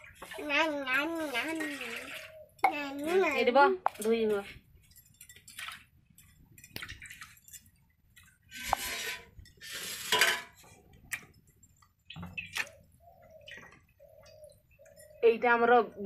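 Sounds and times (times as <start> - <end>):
metal bowls rattling scrapes: 0.0 - 10.9
metal plates clinking: 8.5 - 10.6.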